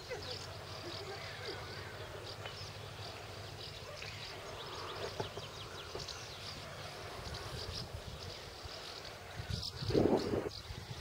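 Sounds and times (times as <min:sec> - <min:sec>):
small birds chirping: 0:00.0 - 0:11.0
wind rumble on microphone: 0:07.1 - 0:11.0.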